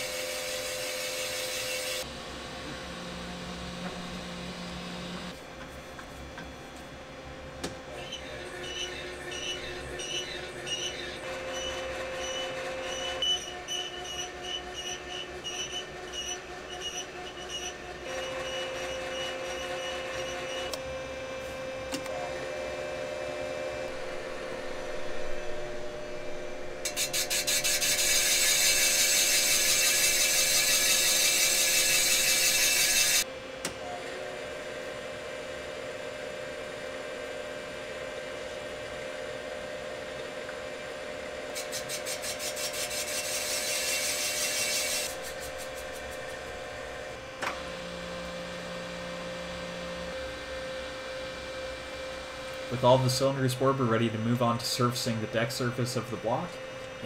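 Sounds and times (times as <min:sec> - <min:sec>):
cutter rasping on metal: 0:00.0 - 0:02.1, 0:08.0 - 0:20.8, 0:26.8 - 0:33.2, 0:41.5 - 0:47.0
machine motor hum: 0:02.0 - 0:41.7, 0:42.3 - 0:57.0.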